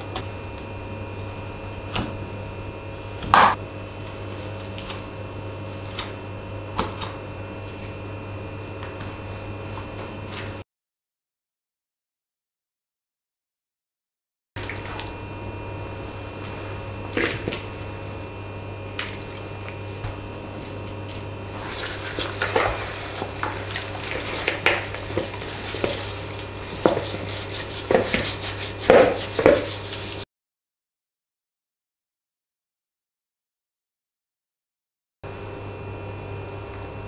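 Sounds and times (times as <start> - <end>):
steady low hum: 0.0 - 10.6, 14.6 - 30.2
wet squelching and sloshing: 3.5 - 10.6, 14.6 - 15.2, 15.8 - 30.2.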